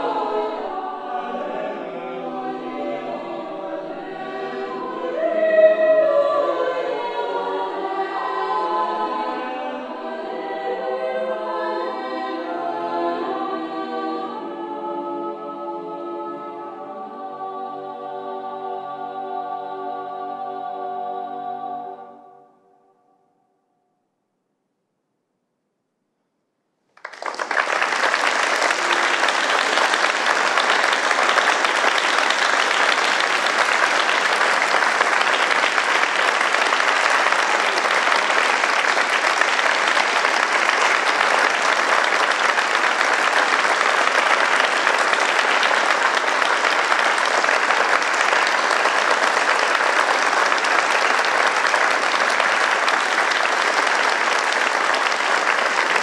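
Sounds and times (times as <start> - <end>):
audience applause: 27.0 - 56.0.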